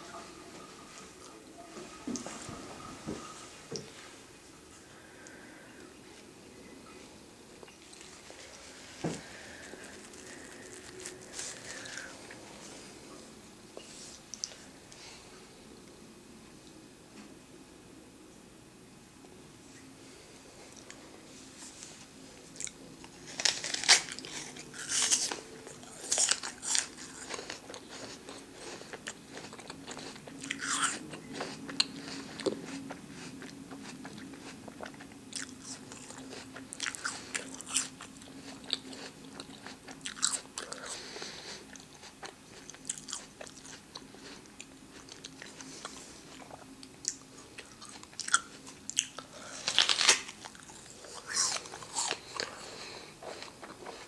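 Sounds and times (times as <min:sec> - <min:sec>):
apple crunching and chewing: 0:07.6 - 0:12.4, 0:22.5 - 0:54.0.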